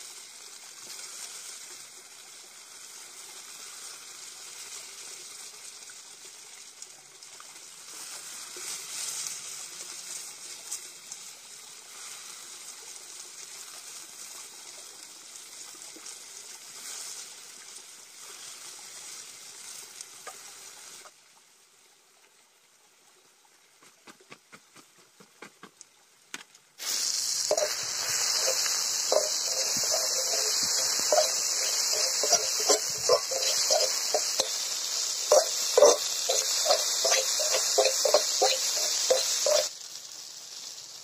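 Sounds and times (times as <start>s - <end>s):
onions sizzling in oil: 0.0s - 21.3s, 26.8s - 41.0s
knife scraping against pan: 27.5s - 39.7s.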